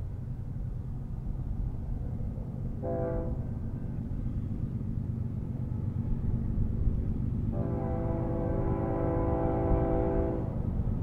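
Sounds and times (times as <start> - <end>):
locomotive air horn blast: 2.8 - 3.5, 7.5 - 10.5.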